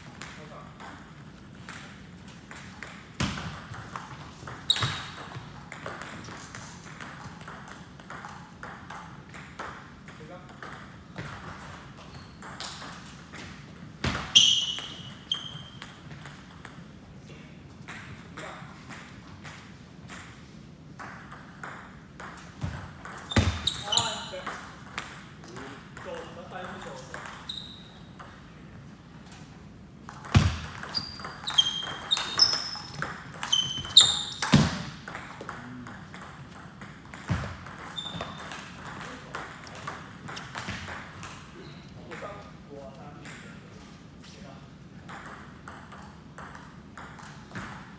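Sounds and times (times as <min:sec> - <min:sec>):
ball bouncing: 0:00.0 - 0:16.8, 0:17.8 - 0:28.4, 0:30.0 - 0:41.5, 0:45.0 - 0:47.9
ping pong ball clicking off bats: 0:00.0 - 0:16.9, 0:21.0 - 0:27.5, 0:28.1 - 0:28.4, 0:30.1 - 0:41.5, 0:45.0 - 0:47.9
high squeak: 0:14.3 - 0:15.8, 0:23.3 - 0:24.4, 0:30.8 - 0:34.5, 0:38.0 - 0:38.4.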